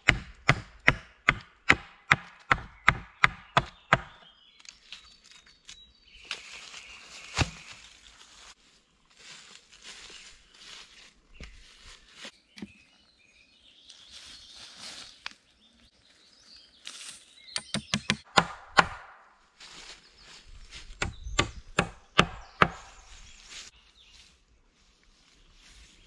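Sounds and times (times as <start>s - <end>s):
tools knocking on wood: 17.6s - 19.0s.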